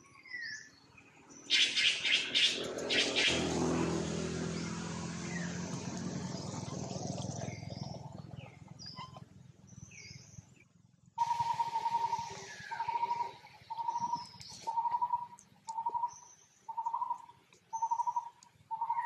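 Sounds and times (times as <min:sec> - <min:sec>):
vehicle engine hum: 0:00.7 - 0:19.0
loud steady tone: 0:11.2 - 0:14.2
short high-pitched calls: 0:11.2 - 0:16.1.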